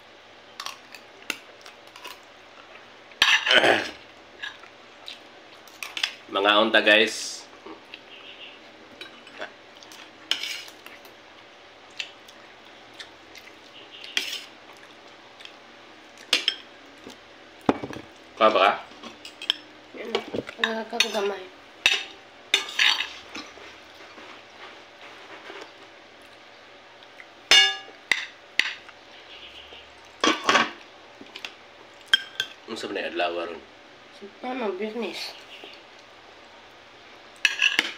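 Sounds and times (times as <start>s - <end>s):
dishes clattering: 17.7s - 18.1s, 27.5s - 28.8s, 30.2s - 30.8s, 37.4s - 37.9s
tableware clinking: 27.5s - 28.8s, 30.2s - 30.8s, 37.4s - 37.9s
cutlery clinking on a plate: 37.4s - 37.9s.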